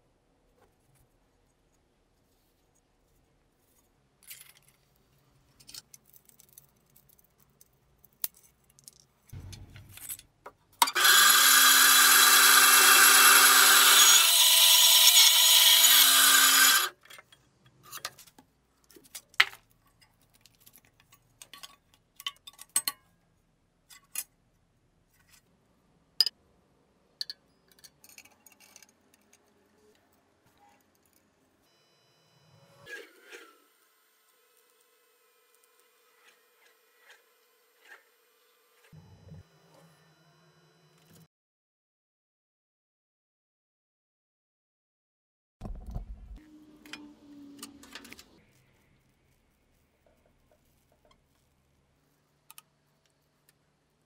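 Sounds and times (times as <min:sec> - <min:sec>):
band saw cutting wood: 0:10.8 - 0:17.0, 0:34.4 - 0:39.0.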